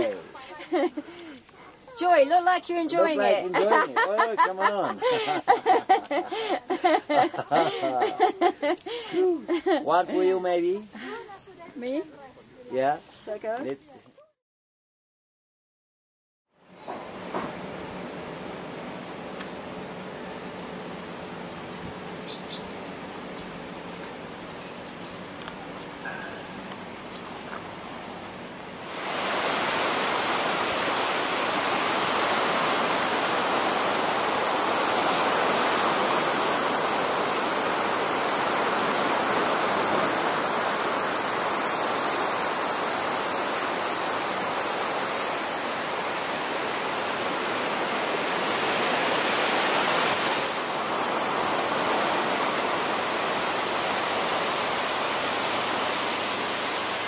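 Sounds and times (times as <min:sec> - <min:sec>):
surf breaking on beach: 0:28.8 - 0:57.0.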